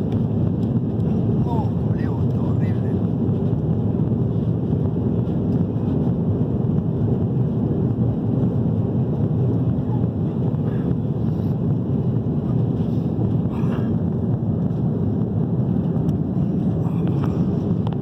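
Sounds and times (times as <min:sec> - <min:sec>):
jet engines rumbling: 0:00.0 - 0:18.0
rushing air: 0:00.0 - 0:18.0.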